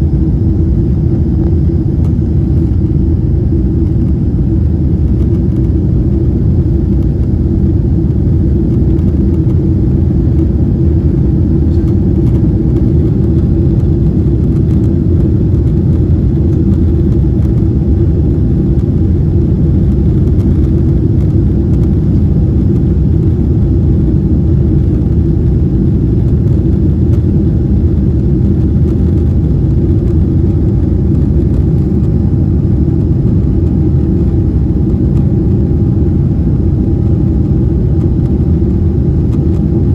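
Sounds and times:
airplane cabin rumble: 0.0 - 39.9.

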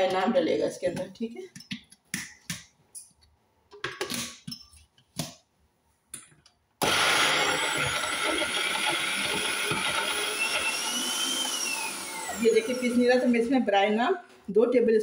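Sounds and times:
mixer grinder motor running: 6.8 - 13.4.

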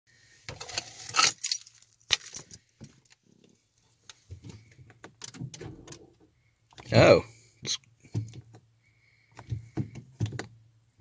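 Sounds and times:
car keys jangling: 1.1 - 3.2.

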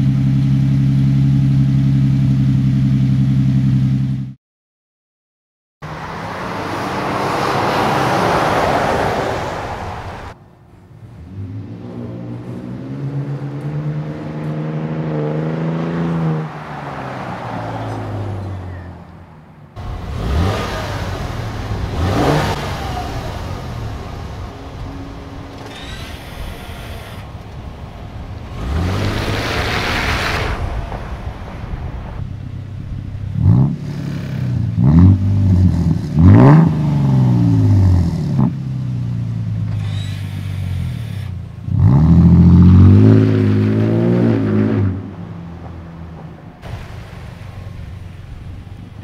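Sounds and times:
truck exhaust revving: 19.8 - 38.7.

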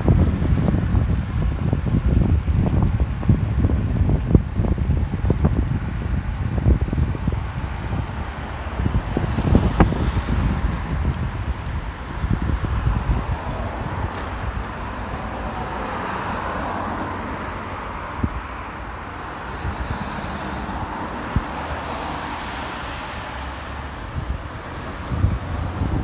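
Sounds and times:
cars driving past: 5.4 - 26.0.

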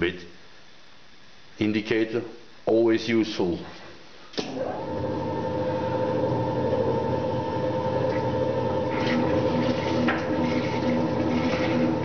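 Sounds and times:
metal shaper motor hum: 4.6 - 12.0.

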